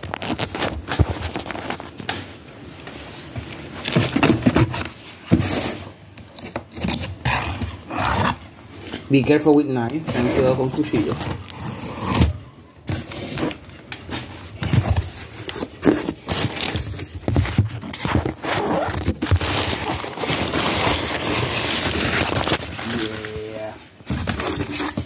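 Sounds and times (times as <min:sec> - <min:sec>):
packing paper rustling: 0:00.0 - 0:02.3, 0:03.2 - 0:25.0
cardboard box being cut open: 0:10.1 - 0:13.6, 0:17.9 - 0:23.2.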